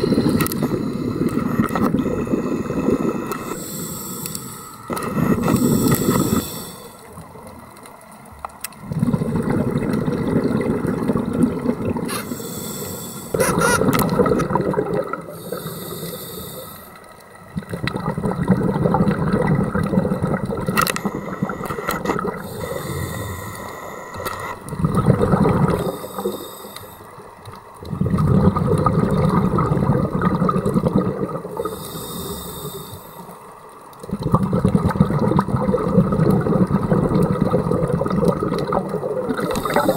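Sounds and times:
regulator inhale hiss: 0.0 - 7.2, 12.1 - 13.8, 15.3 - 17.2, 20.8 - 24.6, 25.8 - 27.3, 31.5 - 33.5, 39.4 - 39.9
exhaled bubbles rushing: 8.8 - 12.1, 13.3 - 15.4, 17.4 - 22.8, 23.6 - 26.3, 27.8 - 31.7, 34.1 - 39.9.

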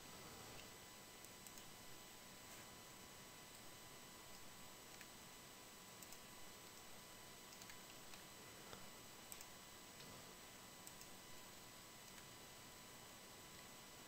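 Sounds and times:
computer mouse clicks: 0.5 - 1.8, 4.3 - 5.1, 6.0 - 6.9, 7.5 - 8.3, 9.3 - 10.1, 10.8 - 11.2, 12.0 - 12.3.

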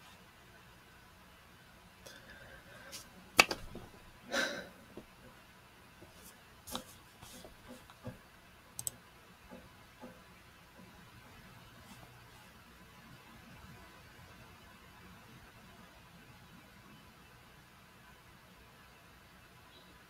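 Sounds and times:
desk handling noises: 3.4 - 4.0
computer mouse clicks: 8.8 - 10.2.

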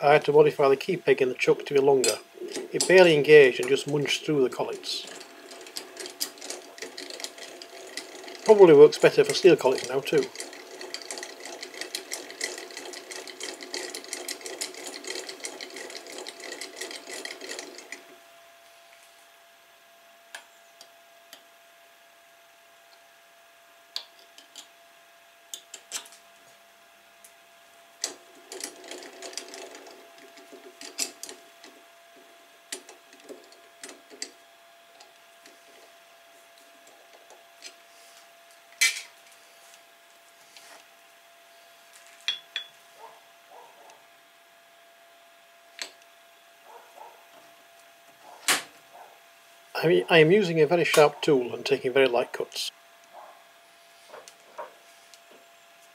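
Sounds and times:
mechanical clicking and rattling: 2.0 - 18.2, 28.0 - 35.8.

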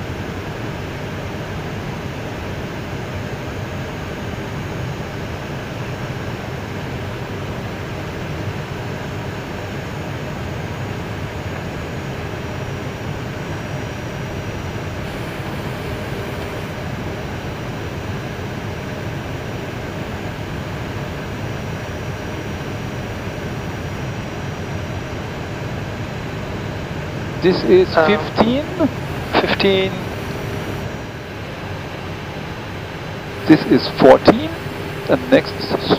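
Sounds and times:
aircraft cockpit taxiing noise: 15.0 - 17.8, 27.4 - 35.9.

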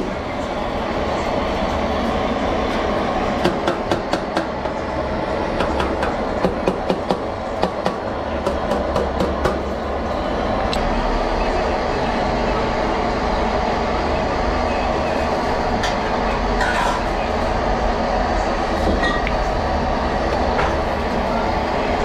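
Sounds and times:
rumbling background noise: 0.0 - 22.0.

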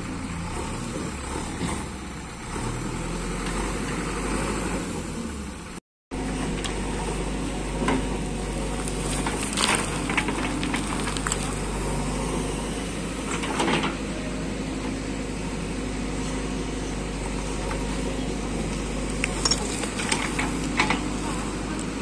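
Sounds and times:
diesel engine running under load: 0.0 - 22.0.

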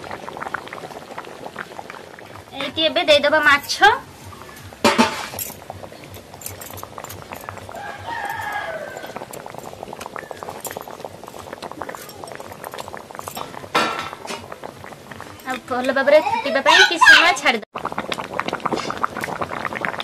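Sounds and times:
curry bubbling and popping: 0.0 - 20.0
chicken calling: 7.6 - 9.3.

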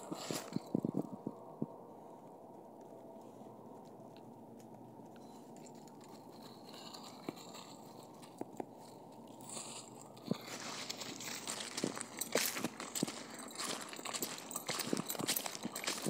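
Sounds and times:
footsteps on dry leaves: 0.0 - 1.0, 6.6 - 16.0
low background noise: 0.0 - 16.0.

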